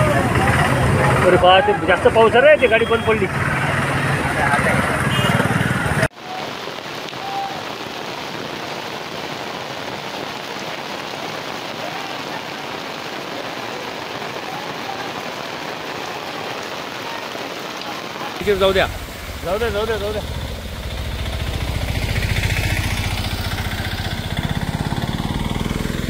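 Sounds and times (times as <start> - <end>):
heavy rain on water: 0.0 - 26.0
vehicle engine running: 18.4 - 26.0.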